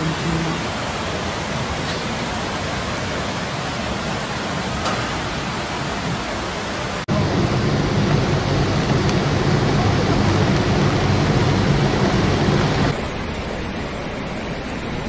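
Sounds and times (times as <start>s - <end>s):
floodwater rushing: 0.0s - 15.0s.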